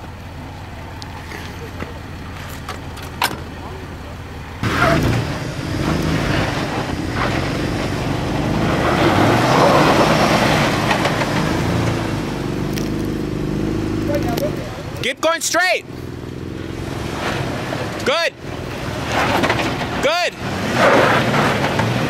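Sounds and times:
engine revving under load: 4.5s - 22.0s
tyres grinding on rocks: 4.6s - 13.1s, 18.6s - 22.0s.

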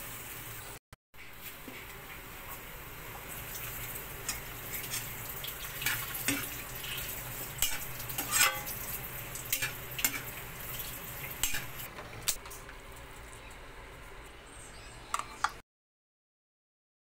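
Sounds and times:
food sizzling in a frying pan: 0.0s - 11.9s
spatula clacking and scraping pan: 3.6s - 11.9s.

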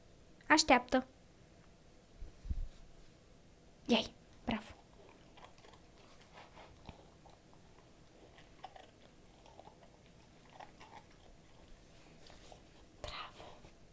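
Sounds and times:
puppy chewing and crunching: 4.3s - 13.1s.

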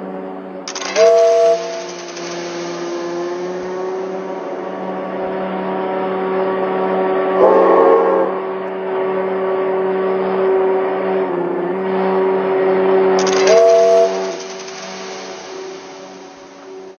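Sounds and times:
locomotive engine drone: 0.0s - 16.9s
horn blast: 0.7s - 9.0s, 13.2s - 16.3s.

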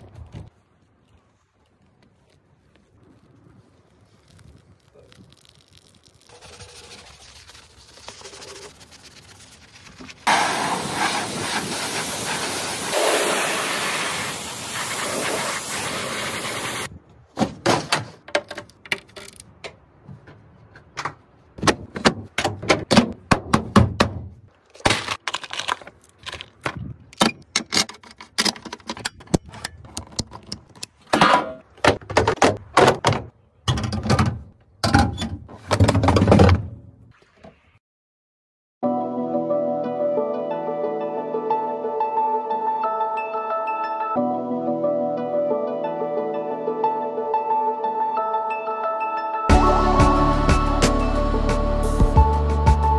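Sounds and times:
pressure washer jet hissing: 10.3s - 16.9s
clunks and rattles of tools: 26.7s - 36.8s.

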